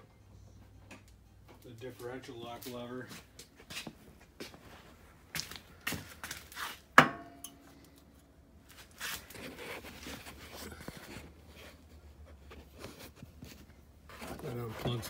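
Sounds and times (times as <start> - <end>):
sharp ringing metal clank: 7.0 - 7.7
handling and rustling noise: 8.6 - 15.0.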